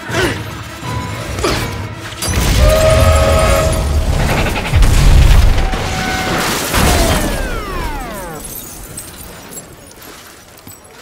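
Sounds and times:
crash with shattering debris: 0:02.2 - 0:09.9.

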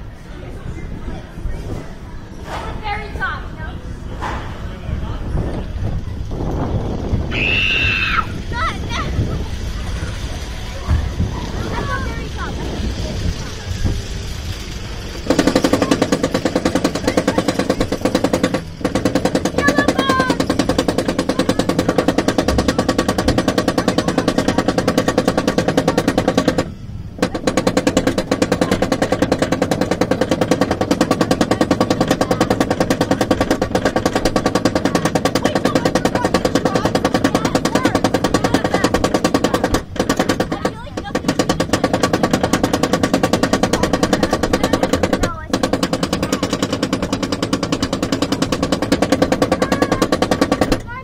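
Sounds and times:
roller coaster chain lift clacking: 0:00.6 - 0:51.0
anti-rollback dogs rattling: 0:08.4 - 0:51.0.

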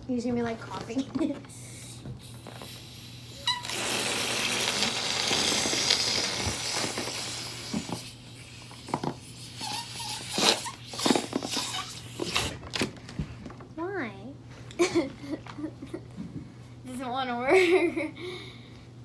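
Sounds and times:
air hissing out of balloon: 0:01.6 - 0:12.6
rubber balloon squeaking: 0:02.2 - 0:12.7.

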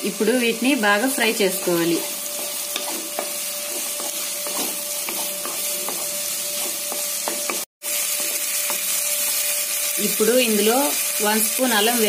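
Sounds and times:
vegetables sizzling in hot oil: 0:00.0 - 0:12.0
wooden spatula scraping a pan: 0:01.6 - 0:09.4.

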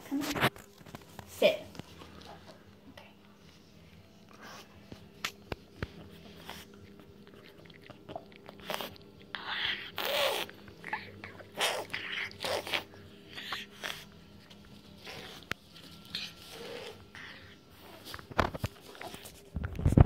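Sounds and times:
puppy chewing and licking: 0:04.3 - 0:20.0.

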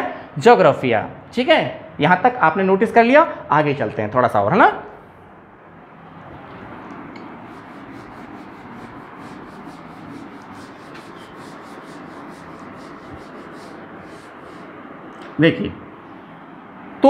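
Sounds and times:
duster scrubbing chalkboard: 0:07.2 - 0:14.8.

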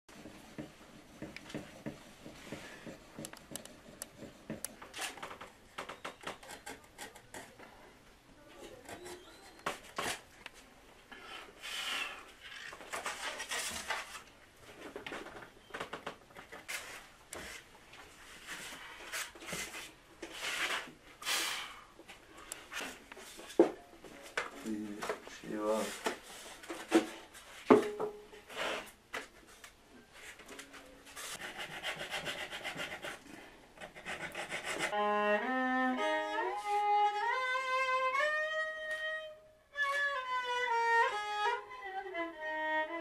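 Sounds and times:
light clicks and knocks: 0:00.2 - 0:07.6
tool scraping wood: 0:01.2 - 0:07.6, 0:31.2 - 0:35.0.

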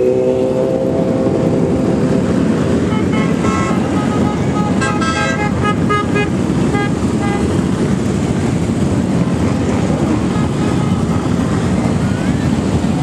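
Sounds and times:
motorcycle engines rumbling: 0:00.0 - 0:13.0
horn tooting: 0:02.8 - 0:07.6.

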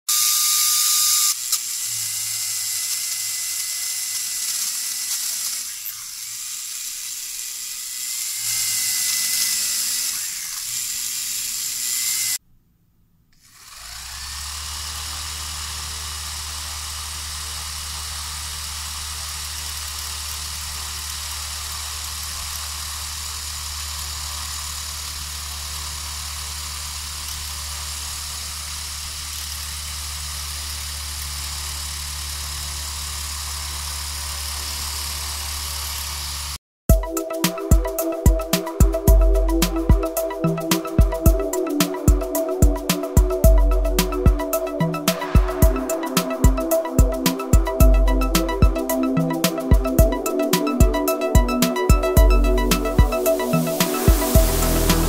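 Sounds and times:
small motors whining: 0:00.1 - 0:12.4, 0:13.4 - 0:36.6.

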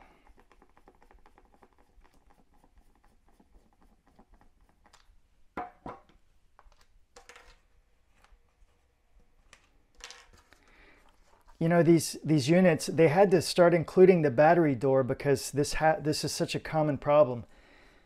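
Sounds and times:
screwdriver ticking and scratching: 0:00.2 - 0:05.1.

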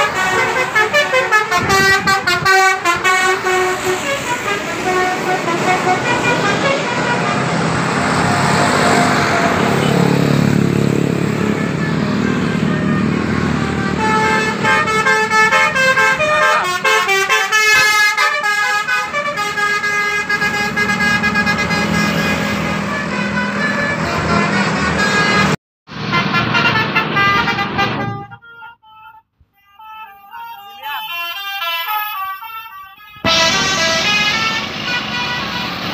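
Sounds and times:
bus engines rumbling: 0:00.0 - 0:35.9
multi-tone bus horns: 0:00.0 - 0:35.9.

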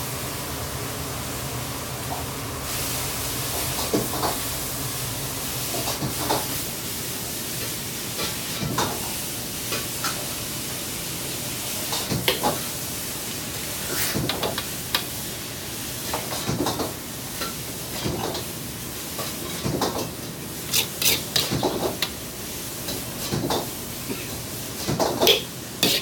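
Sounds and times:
wok burner hiss: 0:00.0 - 0:26.0
kitchen noise: 0:13.8 - 0:15.2, 0:19.1 - 0:26.0
ladle stirring and knocking wok: 0:13.8 - 0:15.2, 0:19.1 - 0:26.0.

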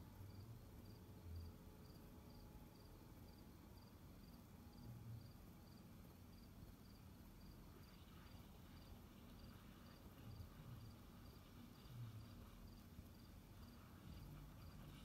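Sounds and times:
low background hum: 0:00.0 - 0:15.0
cricket chirping: 0:00.3 - 0:15.0.

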